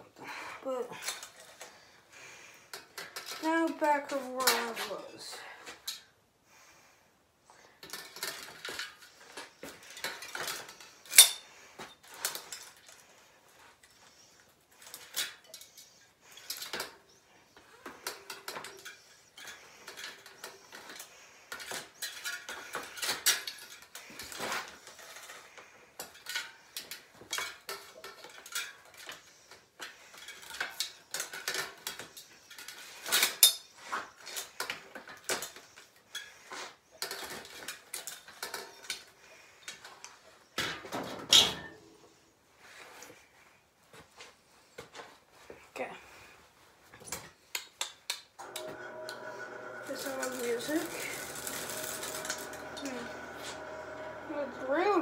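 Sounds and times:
metal tools clinking: 2.7 - 6.1, 7.8 - 13.2, 14.1 - 41.9.

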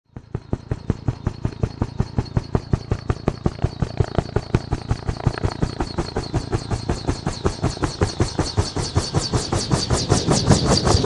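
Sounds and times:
helicopter blades beating: 0.1 - 11.0
helicopter high whine: 0.1 - 11.0.

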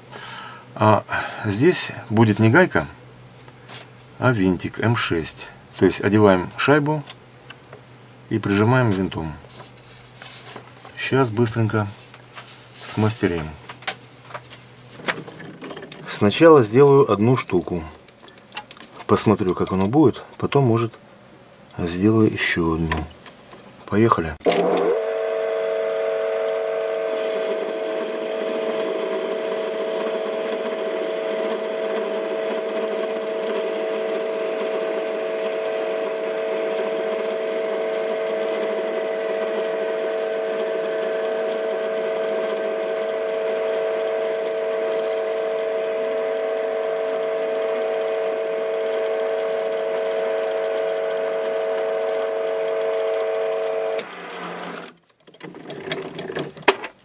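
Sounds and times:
lathe running with whine: 24.6 - 54.9
cutting hiss: 27.1 - 38.7.

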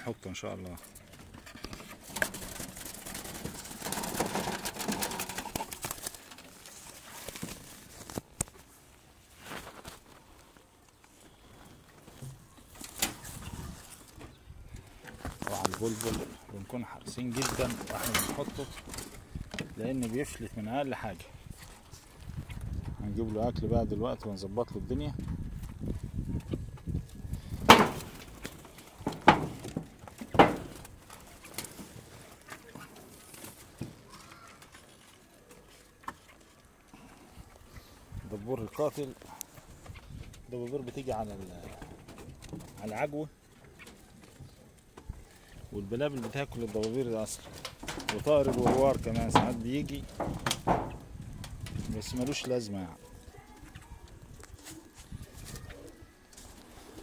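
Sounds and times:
wooden trap rustling and scraping: 0.4 - 22.7, 25.4 - 57.0
rustling handling: 0.7 - 22.7
bird wings flapping: 0.8 - 8.4, 15.0 - 16.5, 17.2 - 20.2, 27.0 - 37.1.

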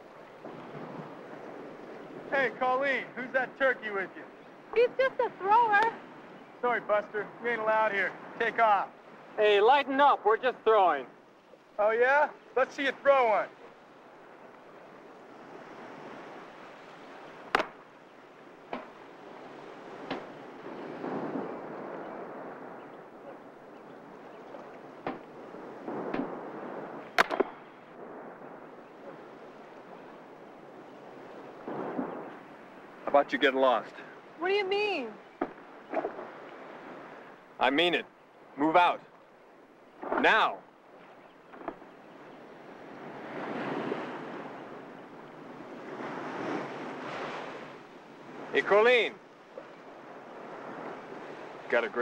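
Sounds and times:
wind and surf: 0.0 - 52.0
sharp clicks or snaps: 27.1 - 27.6.

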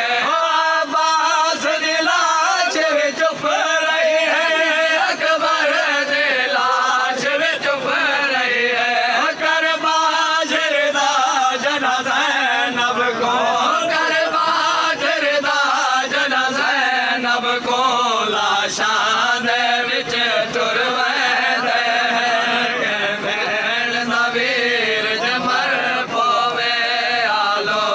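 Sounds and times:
men chanting in chorus: 0.0 - 27.9.

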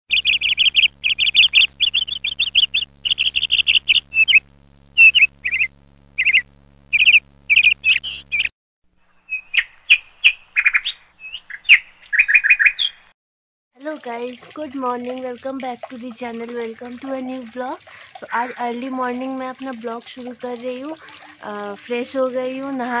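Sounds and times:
small birds chirping: 0.1 - 8.5, 9.1 - 13.1, 18.2 - 19.0.

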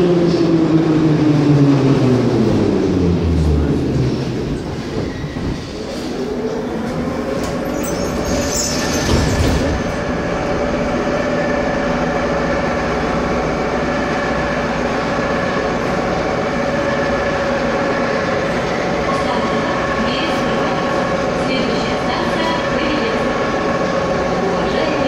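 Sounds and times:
wheels rumbling on rail: 0.0 - 25.0
high-pitched squeal: 7.6 - 9.6.

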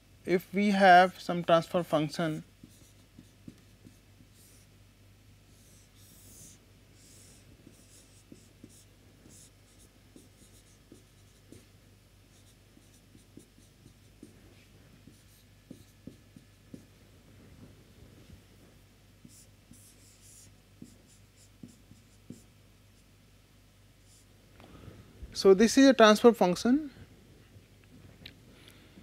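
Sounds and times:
marker pen writing on whiteboard: 2.2 - 4.7, 5.5 - 11.7, 12.3 - 16.9, 19.2 - 23.1.

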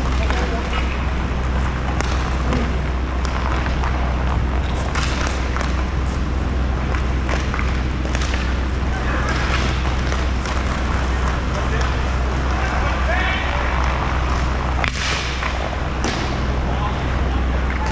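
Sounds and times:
skate wheels rolling: 0.0 - 17.9
steady low hum: 0.0 - 17.9
hockey sticks clacking on puck: 1.8 - 5.9, 6.8 - 16.4
players calling out: 8.5 - 17.9.

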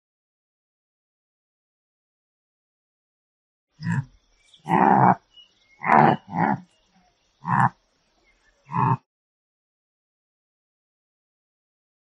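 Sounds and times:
antelope calling: 3.8 - 9.0.

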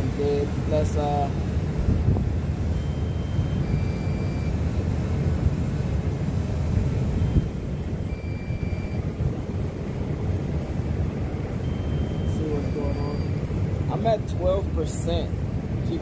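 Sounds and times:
wind buffeting microphone: 0.0 - 16.0
faint high beeps: 2.7 - 4.6, 7.2 - 9.2, 11.6 - 14.1.

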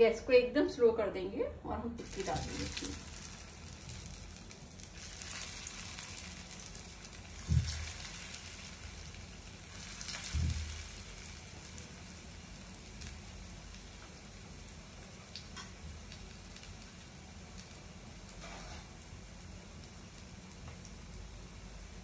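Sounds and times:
oil sizzling in a pan: 2.0 - 22.0.

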